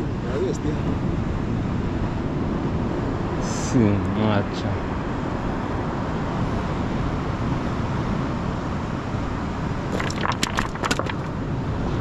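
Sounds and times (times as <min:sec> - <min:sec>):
wind rumble on microphone: 0:00.0 - 0:12.0
stones clacking underfoot: 0:09.9 - 0:11.3.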